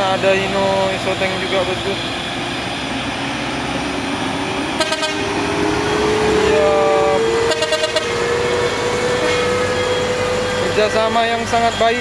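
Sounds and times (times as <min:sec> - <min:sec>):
truck diesel engines climbing: 0:00.0 - 0:12.0
short horn toots: 0:04.8 - 0:05.3, 0:07.5 - 0:08.2.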